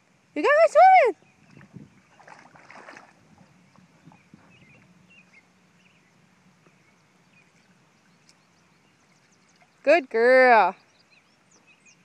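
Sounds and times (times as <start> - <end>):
dog splashing in water: 2.1 - 3.2.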